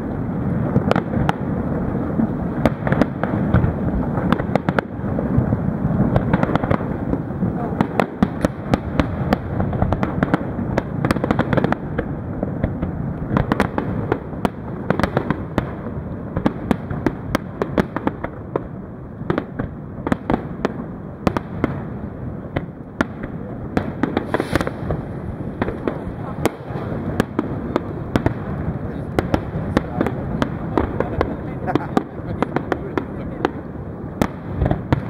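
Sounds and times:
low rumble of explosions: 0.0s - 35.0s
firework shells bursting: 22.5s - 35.0s.

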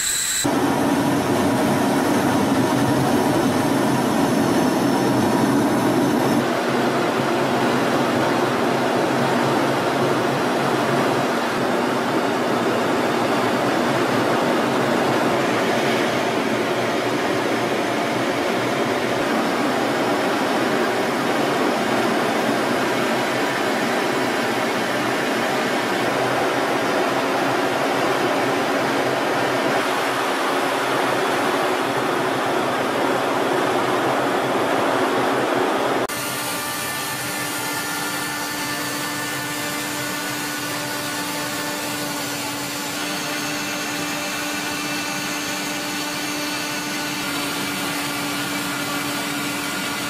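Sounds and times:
jet aircraft cabin roar: 0.0s - 36.1s.

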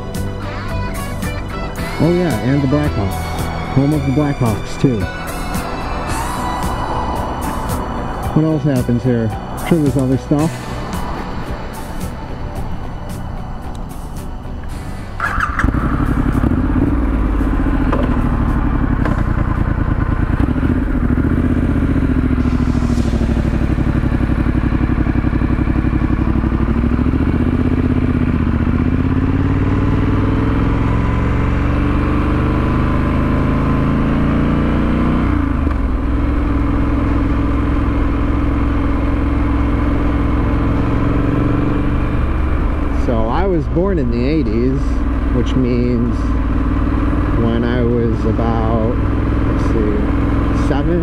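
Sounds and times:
motorcycle engine revving: 0.0s - 51.0s.

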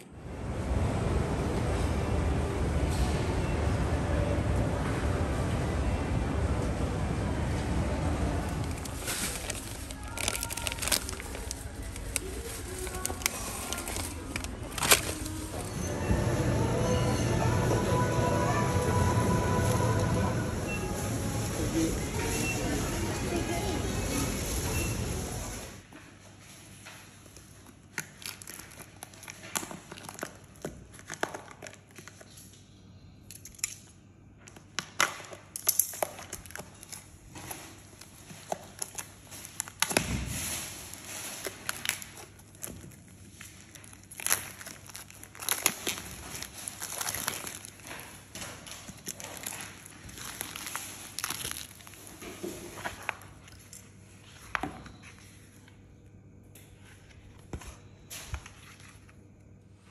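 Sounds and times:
plastic wrapping crinkling: 8.4s - 15.8s, 26.8s - 32.6s, 35.2s - 53.9s.

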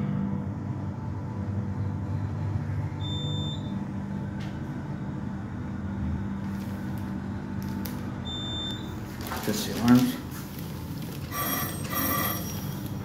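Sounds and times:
elevator drive hum: 0.0s - 13.0s.

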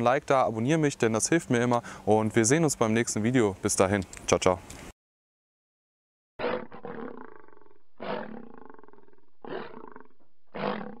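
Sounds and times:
deep animal-like roars: 6.4s - 11.0s.

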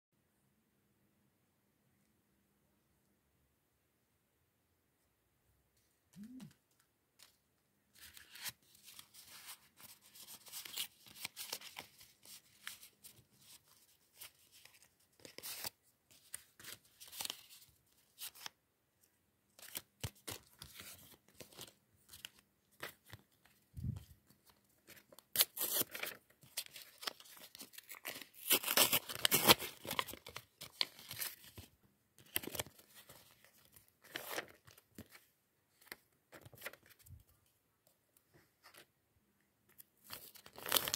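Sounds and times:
paper rustling and tearing: 24.9s - 31.6s.

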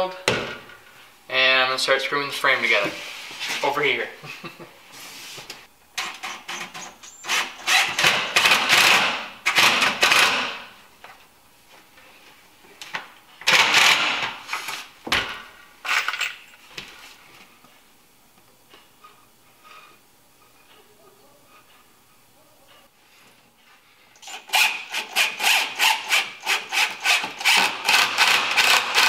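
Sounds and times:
power drill driving screws: 6.0s - 10.6s, 24.2s - 29.0s.

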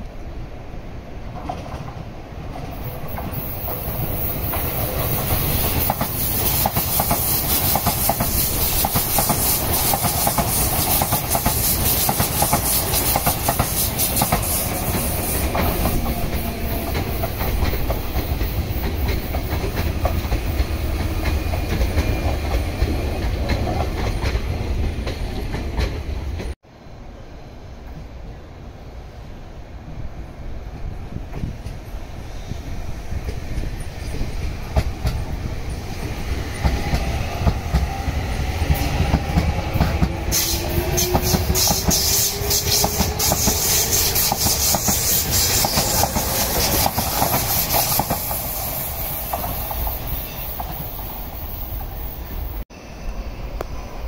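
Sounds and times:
train passing at speed: 0.0s - 54.0s
wheels clacking over rail joints: 1.4s - 26.6s, 33.2s - 51.2s.

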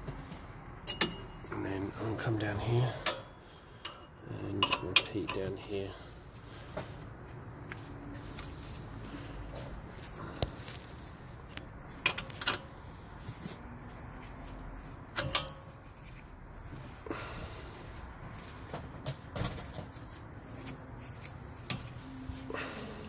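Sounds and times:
metallic clicks and knocks of allen key: 0.9s - 1.5s.

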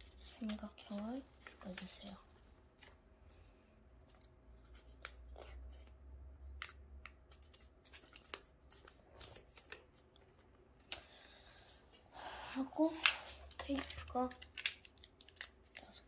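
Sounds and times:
paper crinkling and folding: 0.0s - 3.4s, 6.6s - 11.8s, 13.0s - 16.0s.

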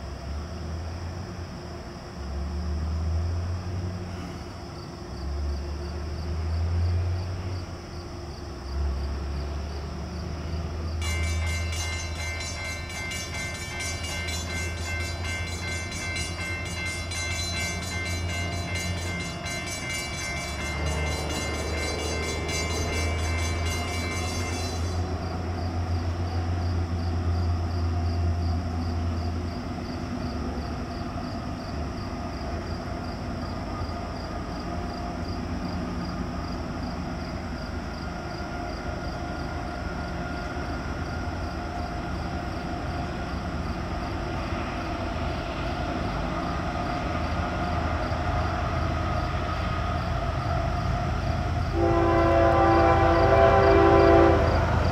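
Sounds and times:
train running noise: 0.0s - 54.9s
locomotive air horn: 51.7s - 54.9s.

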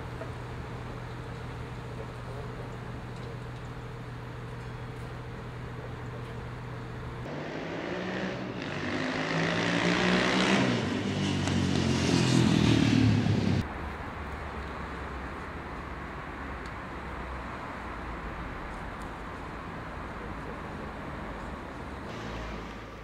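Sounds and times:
street traffic hum: 0.0s - 23.0s
vehicle engine passing: 7.2s - 13.7s.

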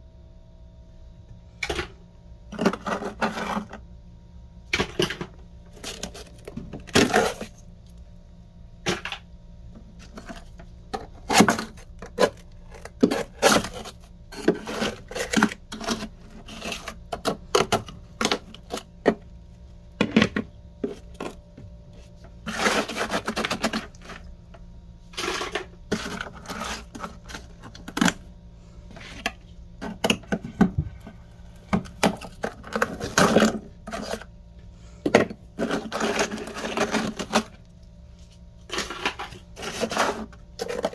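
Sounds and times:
faint steady hum: 0.0s - 40.9s
knife scraping frost: 22.4s - 24.2s, 38.7s - 40.9s.

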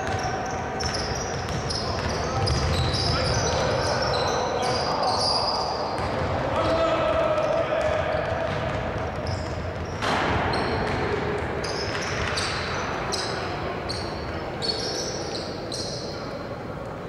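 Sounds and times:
basketball bouncing: 0.0s - 3.7s, 5.9s - 12.6s
sneakers squeaking on court: 0.0s - 16.5s.

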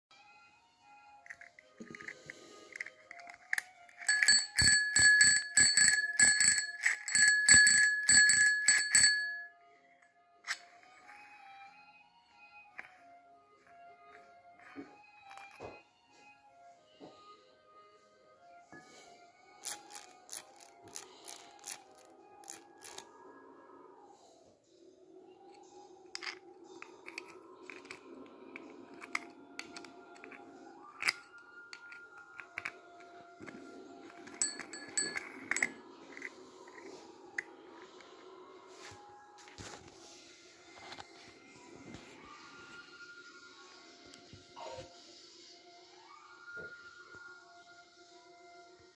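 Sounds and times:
bicycle bell ringing rapidly: 4.0s - 9.5s, 34.2s - 35.7s.

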